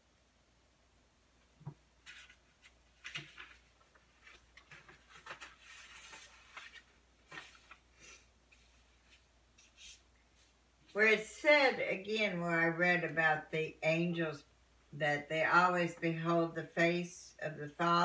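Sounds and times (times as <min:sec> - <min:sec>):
paper rustling and crinkling: 0:02.0 - 0:10.6.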